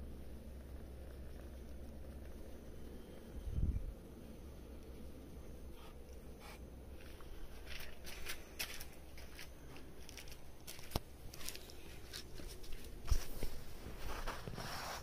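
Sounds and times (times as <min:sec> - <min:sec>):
low steady hum: 0:00.0 - 0:15.0
cat crunching food: 0:06.9 - 0:13.0.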